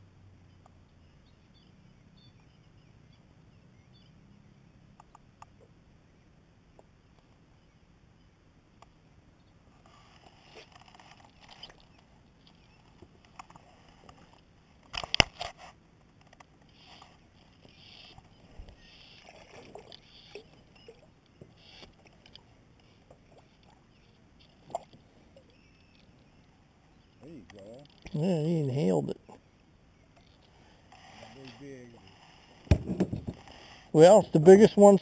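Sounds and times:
rod and reel clicks: 0:09.8 - 0:25.0, 0:25.6 - 0:26.4, 0:27.4 - 0:28.2, 0:30.1 - 0:32.6
sharp knocks: 0:32.7 - 0:33.5.

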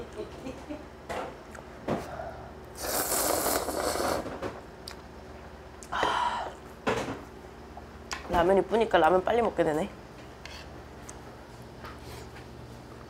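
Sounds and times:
slurping noodles from a bowl: 0:02.8 - 0:04.4.

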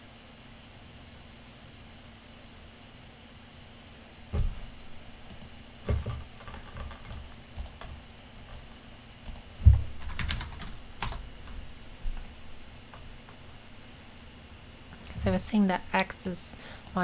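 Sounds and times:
louder thumps: 0:04.3 - 0:04.8, 0:09.6 - 0:10.1
computer keyboard typing: 0:05.3 - 0:11.6.

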